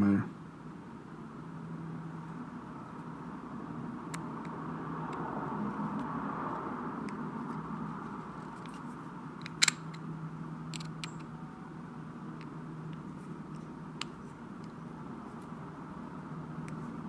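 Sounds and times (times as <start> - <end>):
low background hum: 0.0 - 17.0
screwdriver clicking on metal: 10.7 - 11.3.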